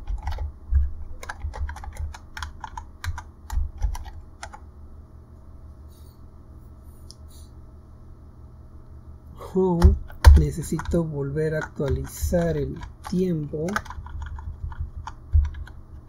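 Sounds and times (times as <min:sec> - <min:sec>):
computer keyboard typing: 0:00.0 - 0:04.6, 0:09.7 - 0:16.0.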